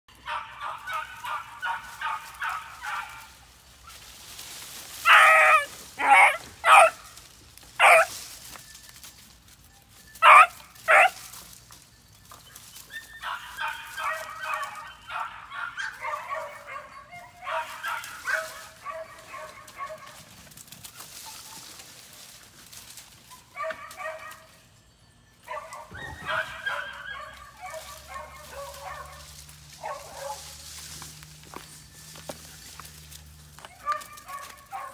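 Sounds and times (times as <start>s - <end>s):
puppy barks: 0.2s - 3.4s, 5.1s - 7.1s, 7.8s - 8.1s, 10.2s - 11.2s, 13.2s - 20.2s, 23.5s - 24.5s, 25.5s - 30.5s, 33.6s - 34.9s
puppies yipping and whining: 4.9s - 7.1s, 7.8s - 24.7s, 25.4s - 34.9s.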